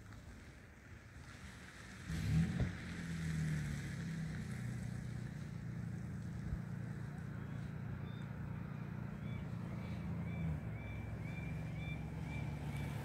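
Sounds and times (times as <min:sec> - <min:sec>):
low engine drone: 0:04.8 - 0:13.0.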